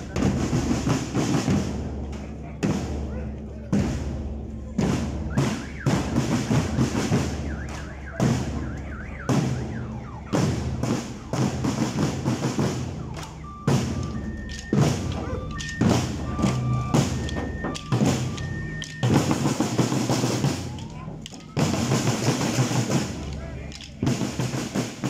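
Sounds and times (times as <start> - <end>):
snare and bass drums marching: 0.0 - 25.0
bell-lyre notes: 13.3 - 20.0.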